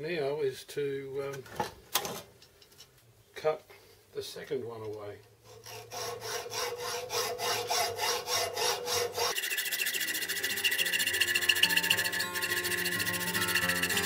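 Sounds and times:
hacksaw cutting metal: 5.5s - 14.0s
background music: 9.5s - 14.0s.

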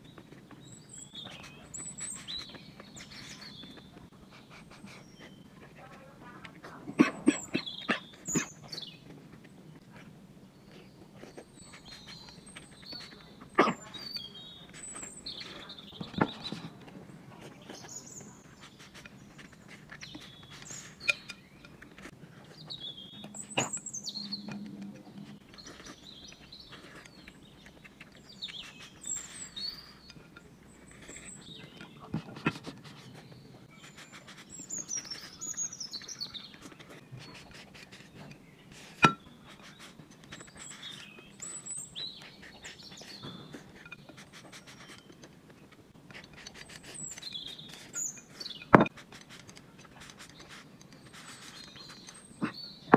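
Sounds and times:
slurping and chewing: 10.6s - 52.8s.

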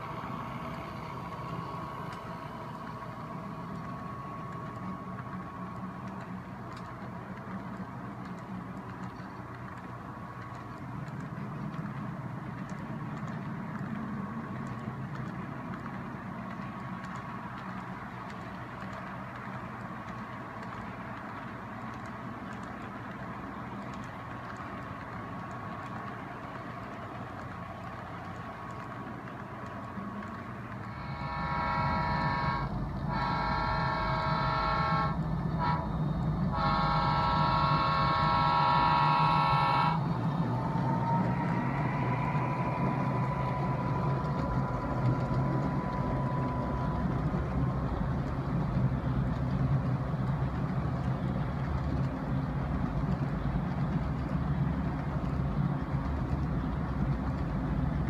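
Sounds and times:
locomotive engines rumbling: 0.0s - 58.0s
locomotive chord horn: 30.8s - 48.0s.

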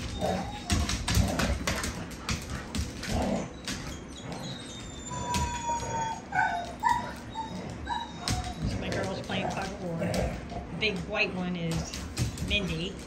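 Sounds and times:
dog whining: 0.0s - 10.9s
dog yipping: 3.5s - 9.6s.

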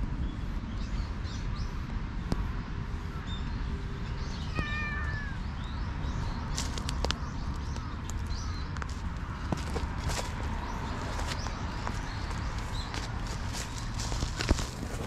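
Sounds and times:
steady low rumble: 0.0s - 15.0s
cat meowing: 4.4s - 5.5s.

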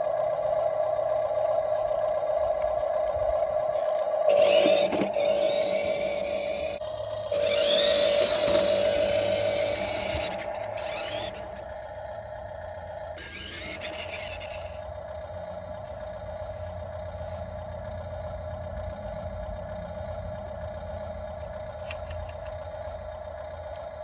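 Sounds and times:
toy truck electronic hum: 0.0s - 24.0s
scraping hiss of toy driving: 3.8s - 11.7s, 13.2s - 14.8s.

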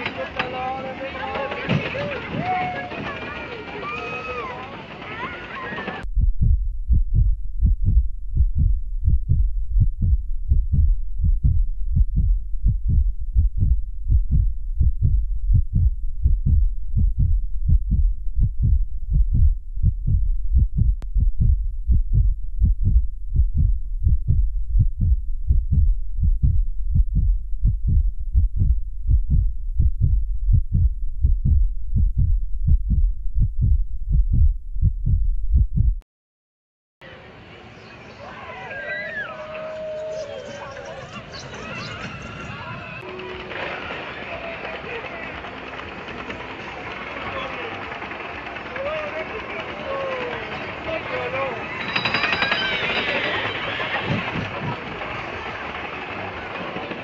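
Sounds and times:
constant low bass: 6.0s - 36.0s
deep thumping beat: 6.0s - 36.0s.

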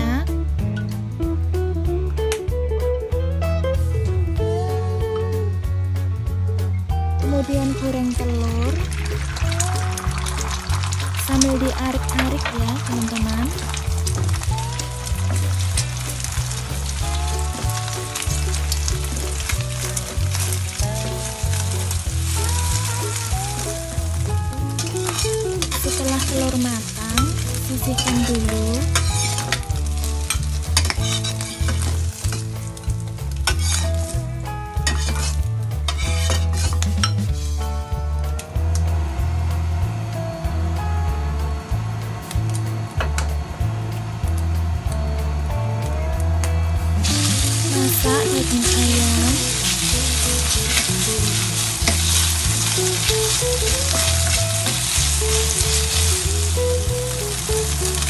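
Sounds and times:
background music with bass: 0.0s - 58.0s
oil sizzling: 7.2s - 37.6s, 46.9s - 58.0s
spatula scraping frying pan: 24.7s - 32.5s, 33.4s - 34.2s, 34.9s - 37.1s, 48.4s - 58.0s.

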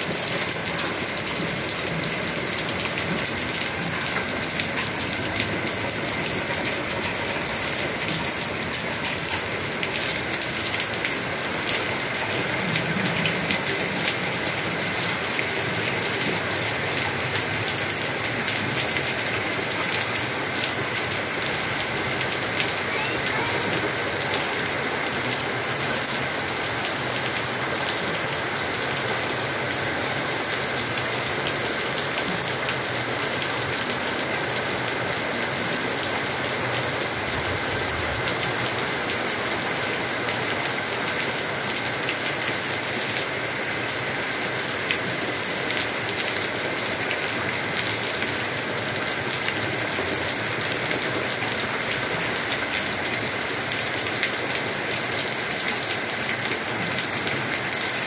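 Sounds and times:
heavy rain on leaves: 0.0s - 58.0s.

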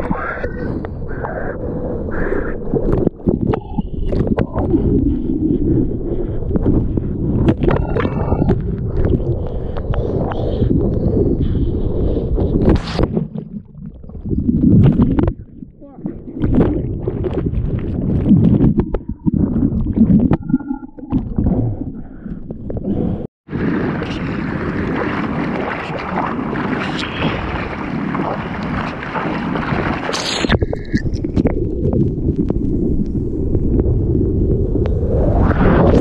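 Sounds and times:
muffled underwater rumble: 0.0s - 36.0s
water splashing and sloshing: 11.6s - 33.9s.

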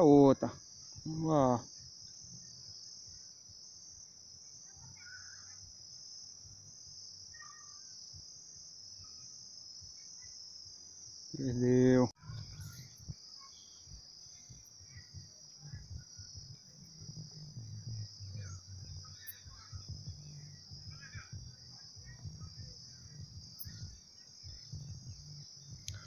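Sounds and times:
insect chorus trilling: 0.0s - 26.0s
faint low rumble: 14.5s - 26.0s.

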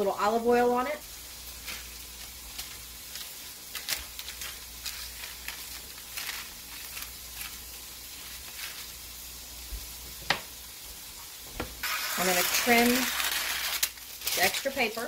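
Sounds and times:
food sizzling with crackles: 0.0s - 15.0s.

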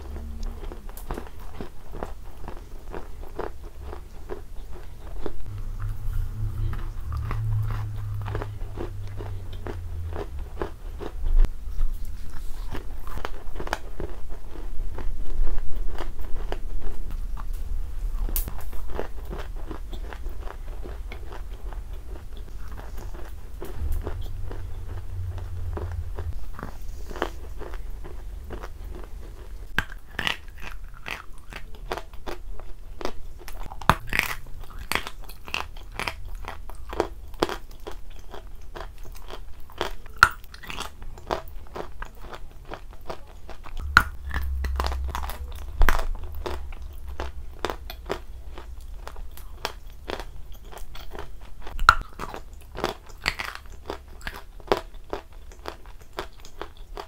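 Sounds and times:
chalk crunching while chewed: 0.2s - 5.5s, 7.1s - 17.5s, 25.7s - 44.7s, 45.9s - 57.0s.

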